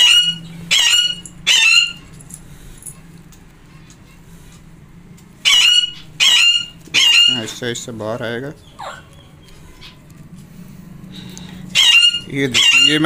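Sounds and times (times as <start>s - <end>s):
parakeet squawking: 0.0s - 2.2s, 5.4s - 7.6s, 8.5s - 10.1s, 11.4s - 13.0s.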